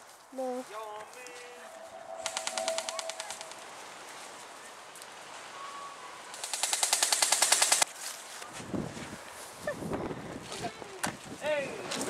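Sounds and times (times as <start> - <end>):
airsoft rifle full-auto burst: 6.4 - 7.9.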